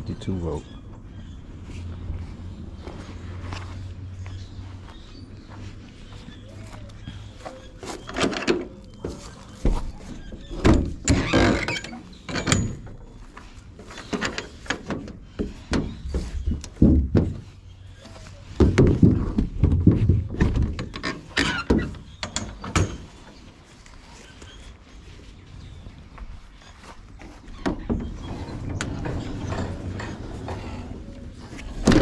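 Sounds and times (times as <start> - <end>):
trailer door knocks and clanks: 7.8 - 13.0, 14.2 - 17.6, 18.6 - 23.1, 27.5 - 32.0.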